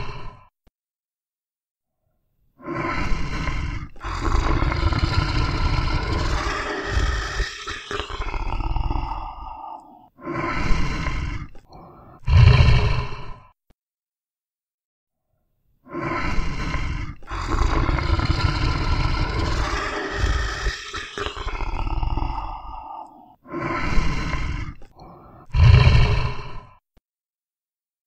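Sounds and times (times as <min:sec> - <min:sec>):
tiger roaring and growling: 0:02.6 - 0:13.4, 0:15.9 - 0:26.7.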